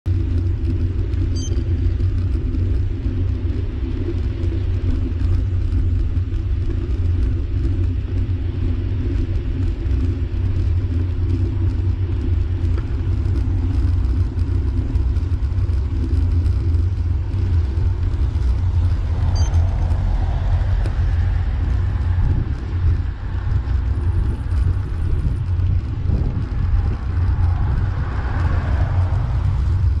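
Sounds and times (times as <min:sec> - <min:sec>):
wind and road rumble: 0:00.0 - 0:30.0
motor vehicle passing: 0:16.7 - 0:30.0.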